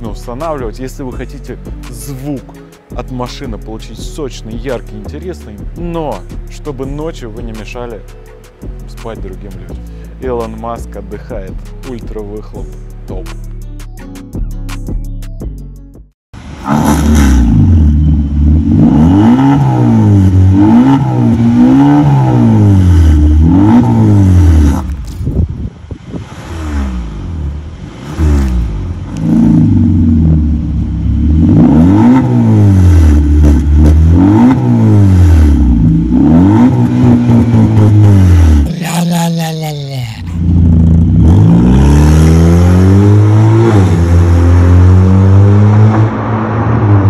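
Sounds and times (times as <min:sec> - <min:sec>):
car engine revving: 0:16.4 - 0:25.1, 0:25.9 - 0:47.0.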